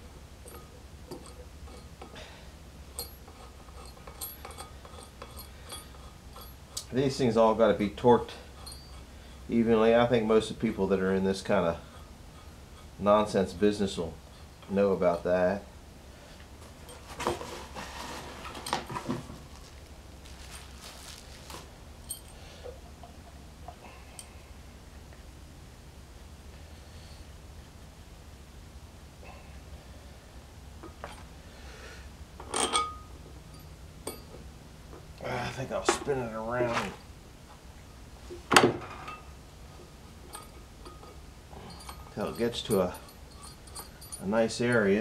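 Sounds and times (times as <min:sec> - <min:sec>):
low steady rumble: 0:00.0 - 0:45.0
hand tools clinking and knocking: 0:00.4 - 0:07.0, 0:08.0 - 0:10.1, 0:16.6 - 0:24.4, 0:32.4 - 0:35.1, 0:35.8 - 0:37.0, 0:38.8 - 0:45.0
small metallic ting: 0:32.5 - 0:34.4.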